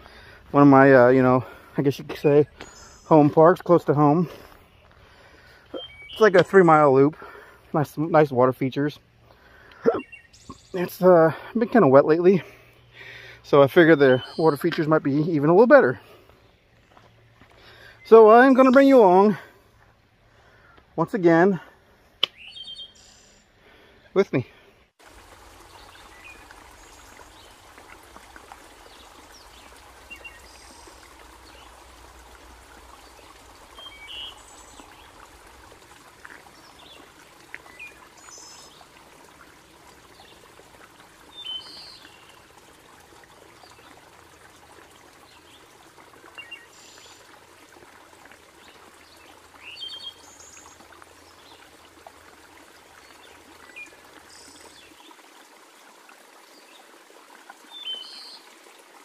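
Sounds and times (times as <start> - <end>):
creek trickling over rocks: 0.0 - 59.0
high bird chirps: 5.7 - 6.5.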